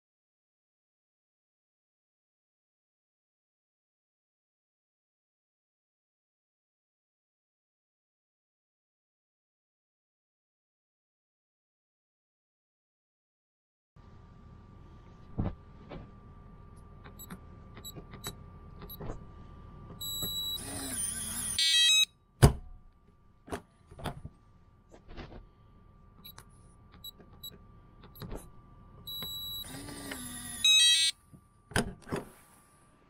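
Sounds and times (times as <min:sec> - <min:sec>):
lock motor running: 0:14.1 - 0:22.0, 0:25.8 - 0:31.1
keypad button beeps: 0:20.0 - 0:20.6, 0:21.6 - 0:22.1, 0:29.1 - 0:29.7, 0:30.6 - 0:31.1
stepped confirmation beeps: 0:30.7 - 0:31.1.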